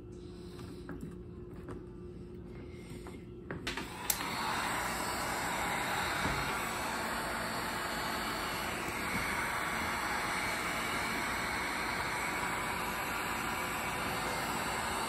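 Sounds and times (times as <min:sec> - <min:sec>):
heat gun fan blowing: 0:02.7 - 0:15.0.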